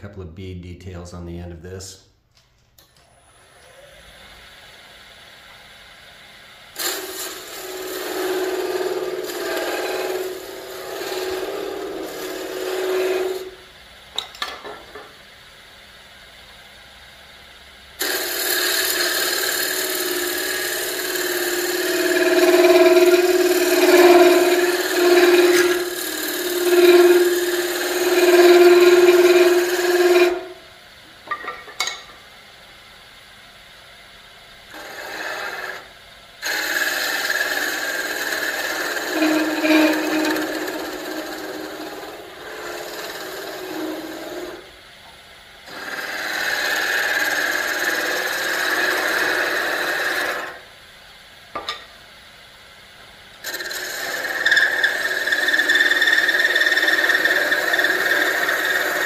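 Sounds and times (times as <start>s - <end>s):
lathe tool scraping wood: 6.8s - 13.6s, 18.0s - 30.7s, 34.7s - 44.7s, 45.7s - 50.6s, 53.4s - 59.0s.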